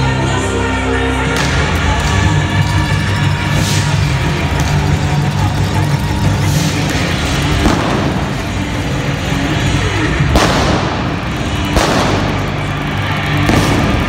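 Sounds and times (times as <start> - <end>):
loud music: 0.0 - 14.0
fireworks fountains rushing: 3.5 - 14.0.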